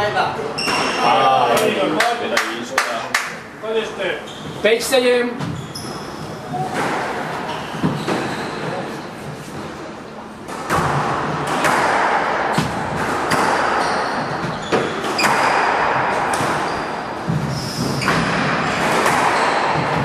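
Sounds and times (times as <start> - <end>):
squash ball smacks echoing: 10.5 - 20.0.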